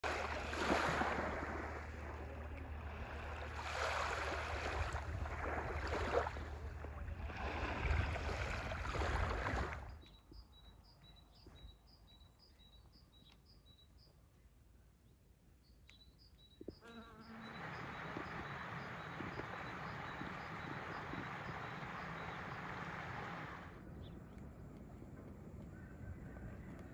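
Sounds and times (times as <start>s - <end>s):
small waves washing on beach: 0.0s - 10.0s, 17.2s - 23.9s.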